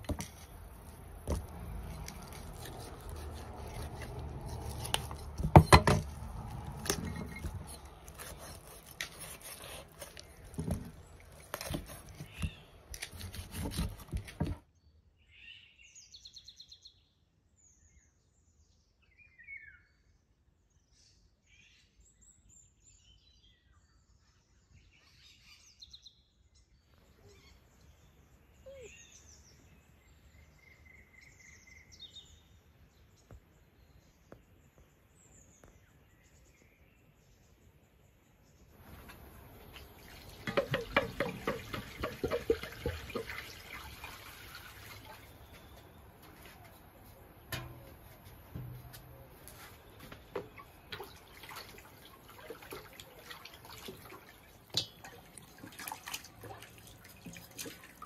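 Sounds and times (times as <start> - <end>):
knife chopping chicken on wood: 1.2 - 10.8, 11.5 - 14.6, 40.5 - 43.3.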